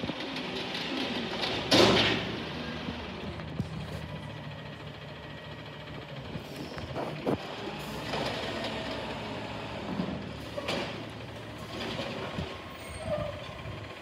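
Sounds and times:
hydraulic arm tipping trash cart: 0.0s - 4.9s, 6.3s - 14.0s
garbage truck engine humming: 0.0s - 14.0s
clanks of cart and arm: 9.8s - 13.9s.

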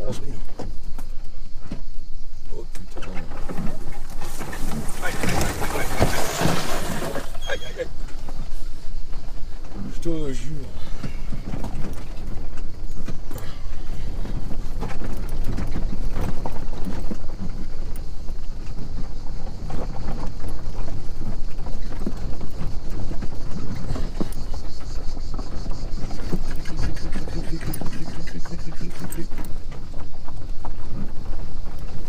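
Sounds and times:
suspension and cabin rattling: 0.0s - 32.0s
tyres rumbling on dirt track: 0.0s - 32.0s.

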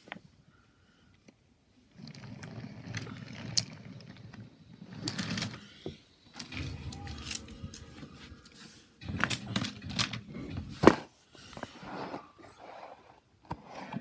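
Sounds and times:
toy train rolling on track: 1.9s - 5.7s.

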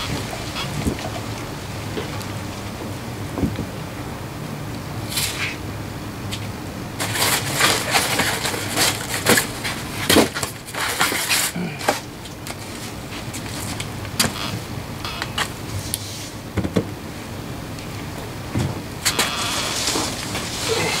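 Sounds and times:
foam slabs scraping and knocking: 7.0s - 12.1s, 18.6s - 21.0s.

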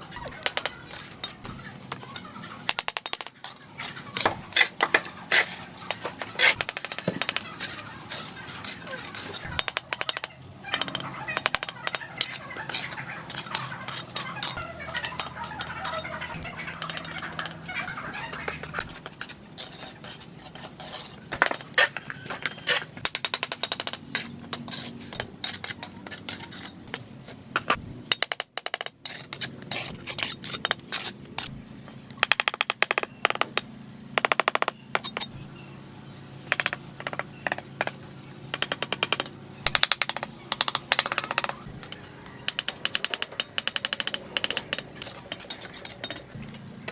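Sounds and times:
trowel tapping bricks: 0.2s - 17.7s, 18.4s - 27.0s, 27.6s - 31.5s, 36.5s - 46.9s
trowel scraping mortar: 2.8s - 10.2s, 10.8s - 27.8s, 29.0s - 32.0s, 43.8s - 46.9s.

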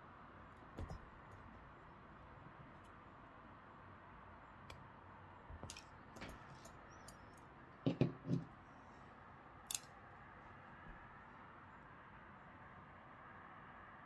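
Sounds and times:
small sharp metal clicks: 9.6s - 10.0s.

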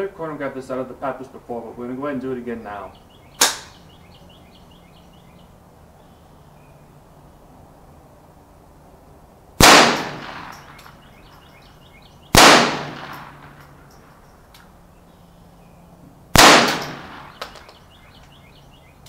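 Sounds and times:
rifle shots with echo: 9.6s - 11.2s, 12.3s - 13.8s, 16.3s - 17.7s.

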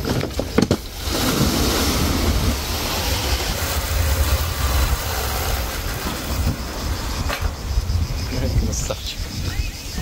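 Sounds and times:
wakeboard spraying through water: 0.0s - 7.3s.

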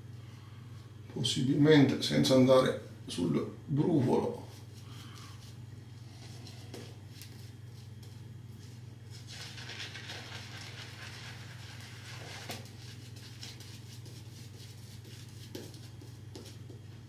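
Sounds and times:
steady low hum: 0.0s - 17.0s
shaving brush wet brushing: 8.6s - 16.7s.

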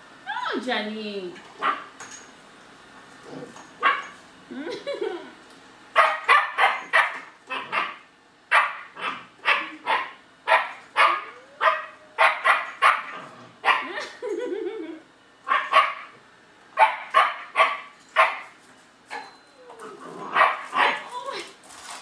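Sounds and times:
puppy barking: 1.6s - 1.9s, 3.8s - 4.2s, 6.0s - 13.9s, 15.5s - 16.2s, 16.8s - 19.3s, 20.3s - 21.1s.

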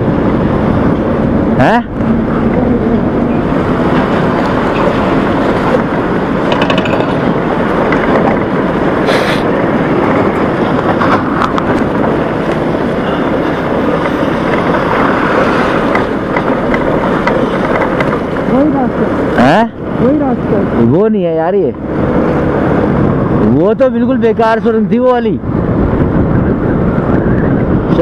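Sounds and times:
scooter engine: 0.0s - 9.0s
wind on microphone: 25.3s - 28.0s.

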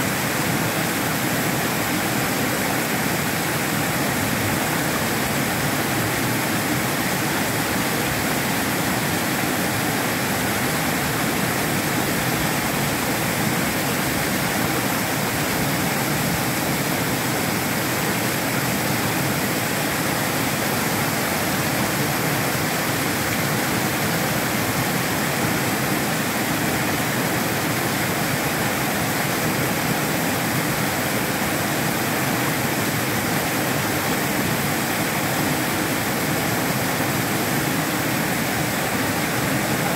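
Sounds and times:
waterfall rushing over rocks: 0.0s - 39.9s.

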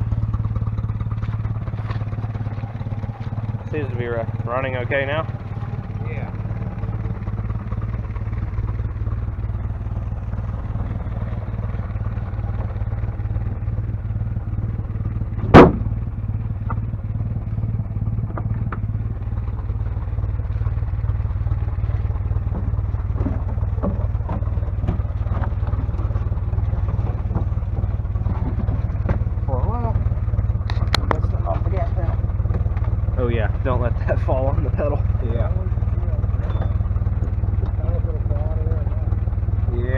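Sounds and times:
car engine idling: 0.0s - 39.9s
sharp loud knock: 15.4s - 15.9s.

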